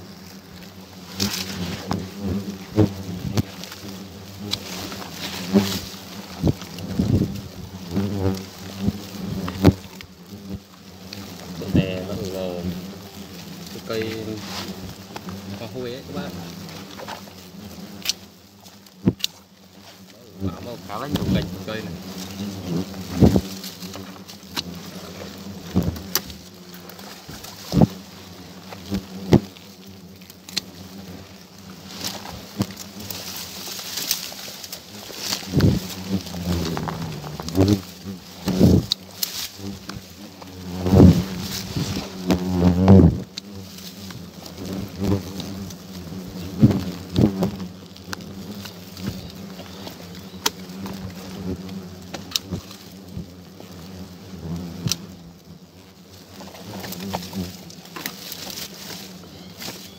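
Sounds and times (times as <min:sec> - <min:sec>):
hornets buzzing: 0:00.0 - 0:59.9
leaves rustling: 0:00.0 - 0:59.9
twigs clicking and snapping: 0:00.1 - 0:42.5, 0:43.2 - 0:53.8, 0:54.6 - 0:55.1, 0:56.2 - 0:59.9
pruning shears snipping: 0:19.1 - 0:19.4.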